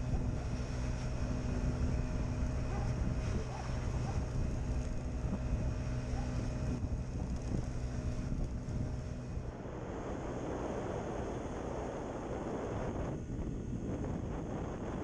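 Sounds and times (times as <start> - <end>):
wind noise on microphone: 0.0 - 15.0.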